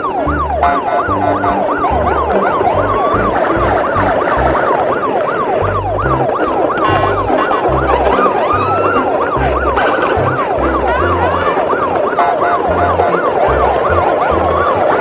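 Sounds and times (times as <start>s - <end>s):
electronic siren yelping: 0.0s - 15.0s
music with stepping bass line: 5.6s - 15.0s.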